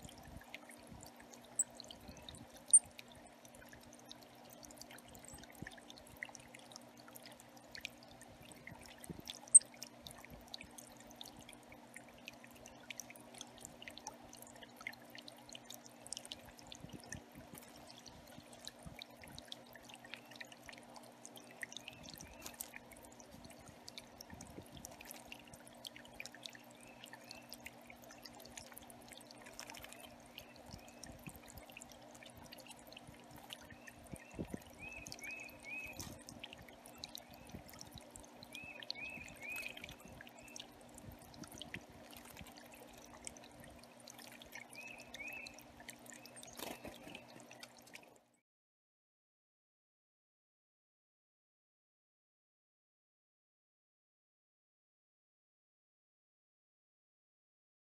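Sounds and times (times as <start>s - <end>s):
water trickling over rocks: 0.0s - 48.4s
birds splashing in water: 24.9s - 31.2s, 41.8s - 48.1s.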